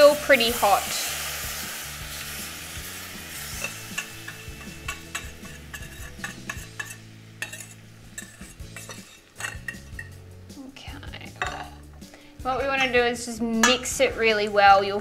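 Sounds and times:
hiss from bowl: 0:00.0 - 0:10.0
whisk scraping a pan: 0:02.1 - 0:10.2.

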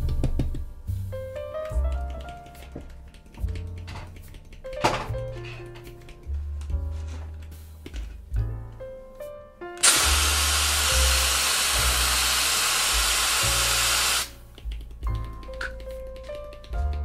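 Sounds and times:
aerosol spray can hissing: 0:09.8 - 0:14.4.

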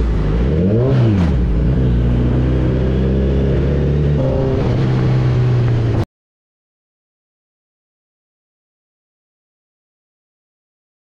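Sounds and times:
motorcycle engine running: 0:00.0 - 0:06.0.

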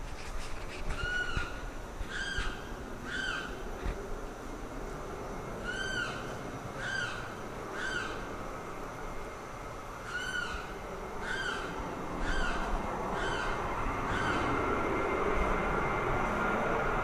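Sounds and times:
bird calling loudly: 0:00.9 - 0:03.6, 0:05.6 - 0:08.3, 0:10.0 - 0:14.6.

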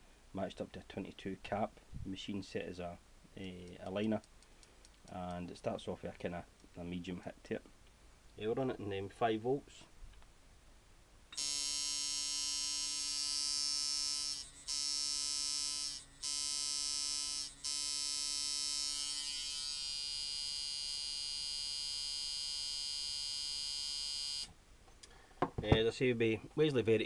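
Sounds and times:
tattoo machine buzzing: 0:11.4 - 0:24.5.

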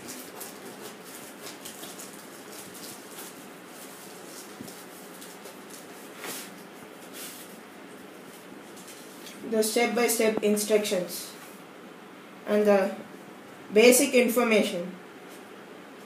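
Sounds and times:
plastic wrap and cardboard rustling: 0:00.0 - 0:09.4
steady background hiss: 0:00.0 - 0:16.0.

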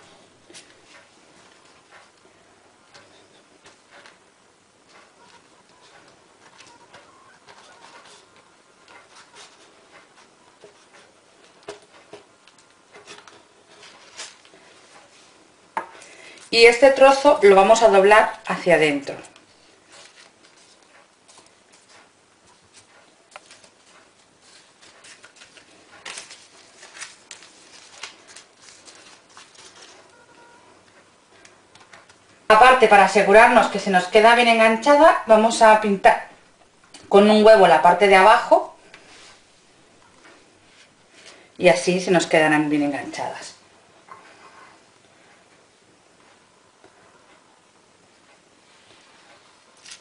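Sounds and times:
baking paper rustling and crinkling: 0:04.9 - 0:15.4, 0:19.2 - 0:30.3.

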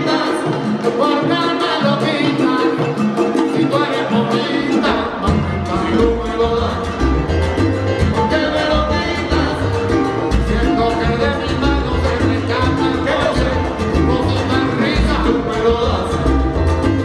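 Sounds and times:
live salsa band playing: 0:00.0 - 0:17.0
people singing: 0:00.0 - 0:17.0
heavy bass line: 0:04.1 - 0:17.0.

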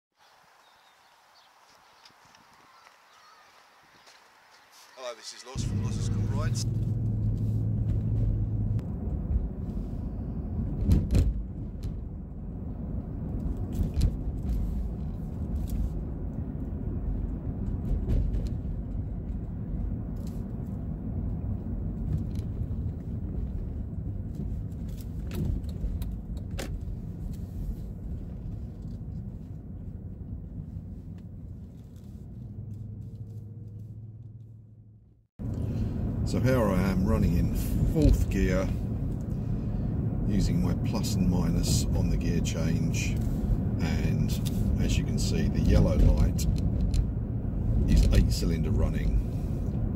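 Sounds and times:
engine and road noise in car cabin: 0:05.0 - 0:49.9
sharp clicks and rattles: 0:44.3 - 0:47.2.

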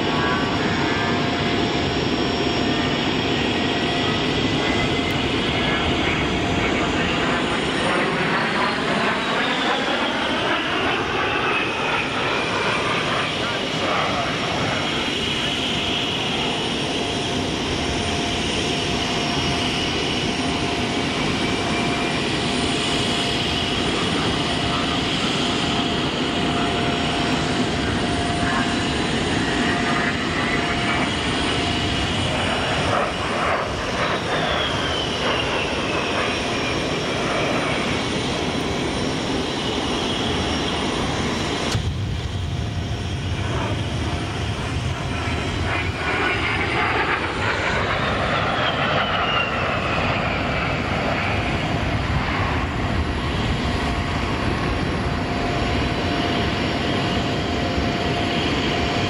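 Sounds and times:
jet engine rush with high whine: 0:00.0 - 0:59.0.

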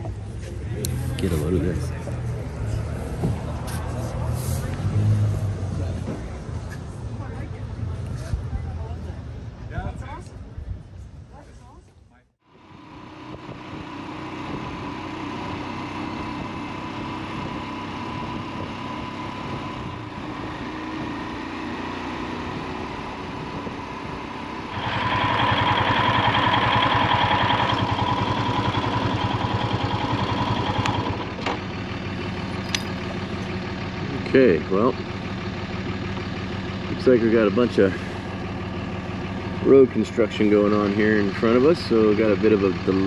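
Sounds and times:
motorcycle engine running: 0:22.5 - 0:43.0.

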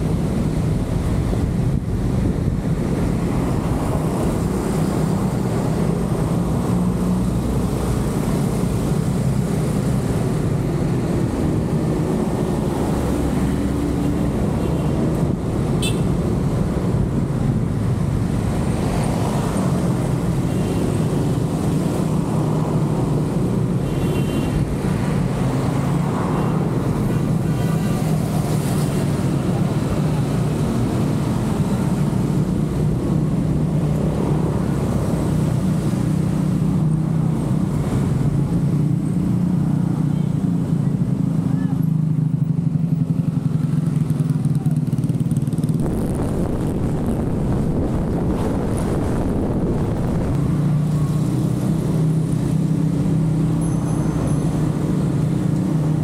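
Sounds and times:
car engine and road rumble: 0:00.0 - 0:56.0.

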